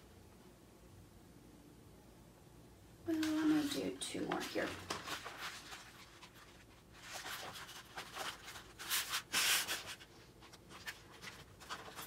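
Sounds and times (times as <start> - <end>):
poster board rustling and scraping: 3.1 - 12.0.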